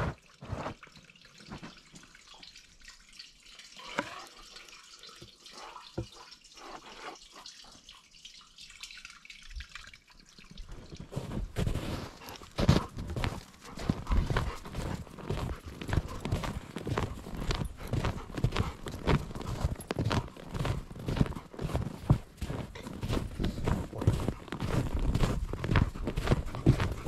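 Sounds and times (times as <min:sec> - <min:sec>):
water dripping in metal pipe: 0:00.2 - 0:11.3, 0:12.4 - 0:21.7
footsteps crunching through snow: 0:11.1 - 0:27.0.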